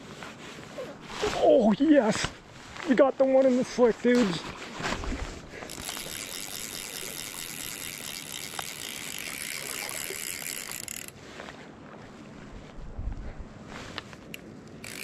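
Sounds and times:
fishing reel drag buzzing: 5.6s - 11.2s, 14.8s - 15.0s.

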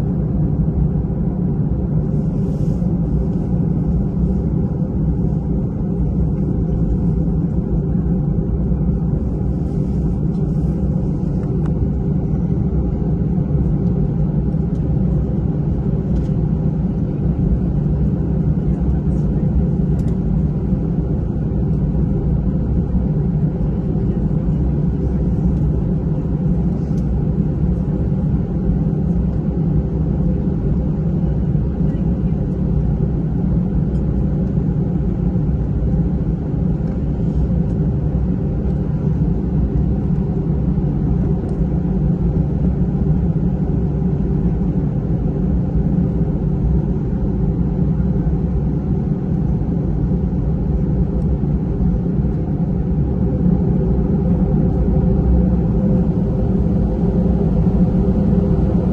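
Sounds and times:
jet engines low rumble: 0.0s - 58.9s.

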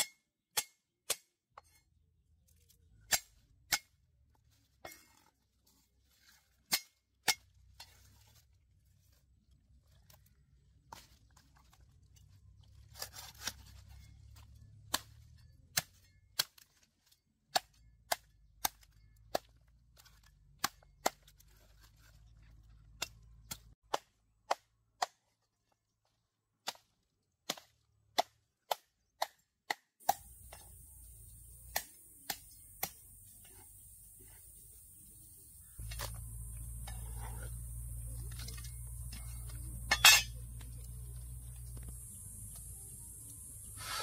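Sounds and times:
faint low hum: 30.2s - 43.8s.

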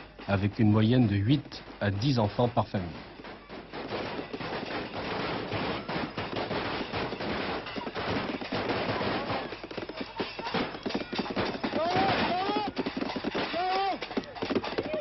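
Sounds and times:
firecrackers crackling: 0.0s - 15.0s.

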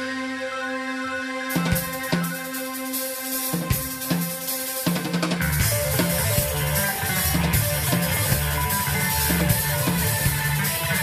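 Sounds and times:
live rock band playing: 0.0s - 11.0s
electric bass low notes: 5.4s - 11.0s.

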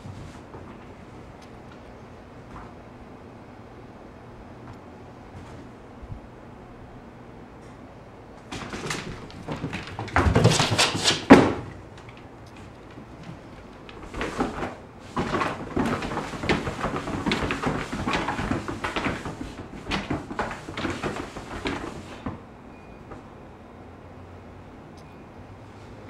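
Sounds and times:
cat paws scrabbling on wood floor: 0.0s - 1.4s, 8.5s - 22.4s.

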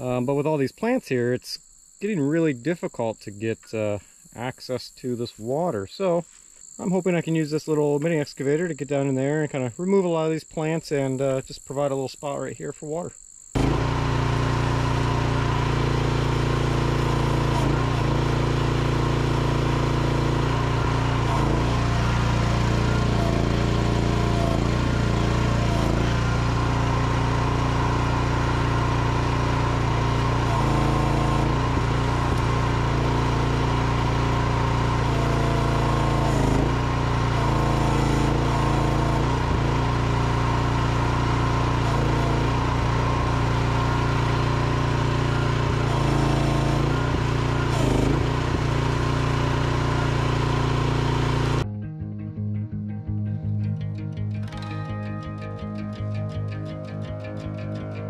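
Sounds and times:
small excavator engine running: 13.6s - 51.6s, 54.4s - 58.0s.

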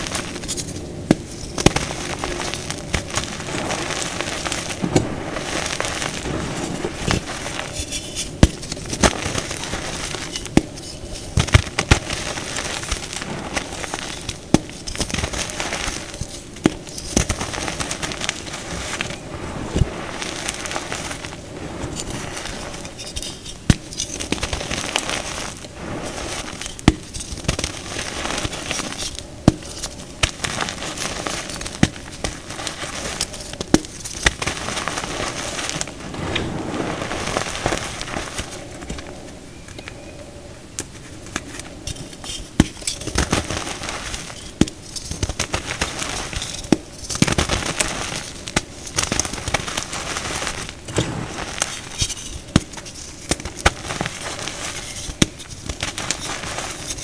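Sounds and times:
powder blocks crunching: 0.0s - 39.1s, 41.3s - 57.0s.

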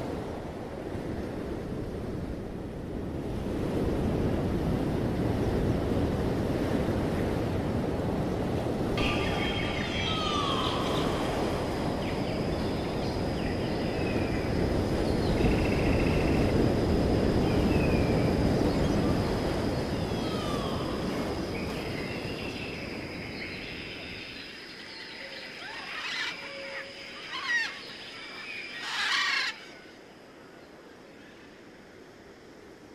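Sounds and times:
wind on the microphone: 0.0s - 24.5s
surf washing on a beach: 0.0s - 24.8s.

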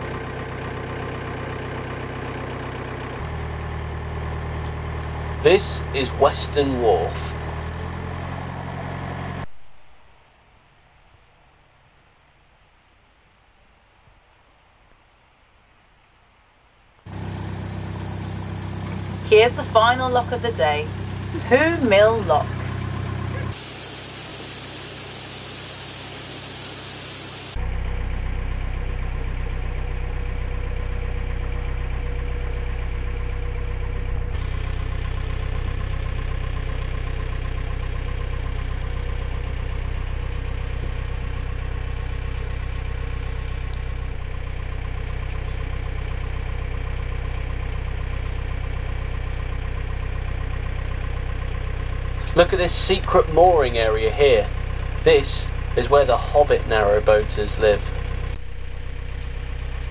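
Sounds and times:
boat diesel engine drone: 0.0s - 9.9s, 17.1s - 59.9s
steady hiss: 23.5s - 27.6s.

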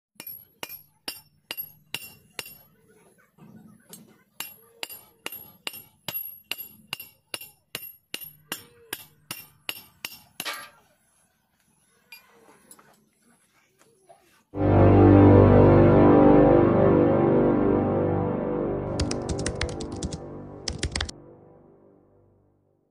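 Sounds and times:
steel rod tapping on steel: 4.4s - 10.6s.

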